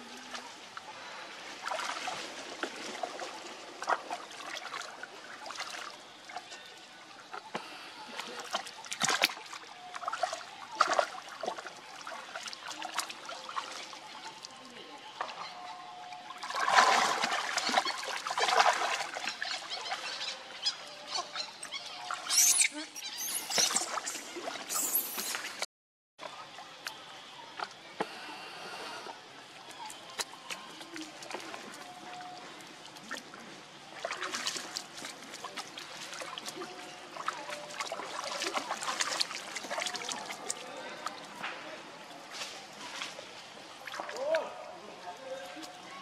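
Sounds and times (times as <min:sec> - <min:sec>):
water splashing in a pool: 0:00.0 - 0:46.0
small quick splashes: 0:08.2 - 0:14.0, 0:16.4 - 0:19.4.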